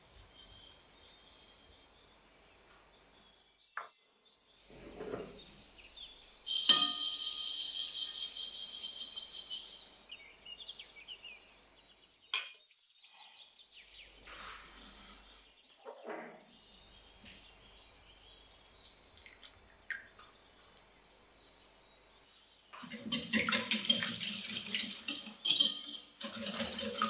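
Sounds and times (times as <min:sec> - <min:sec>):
dishware clinking: 0:06.2 - 0:08.0, 0:22.8 - 0:27.0
utensils scraping and clinking: 0:06.2 - 0:10.3, 0:22.8 - 0:27.0.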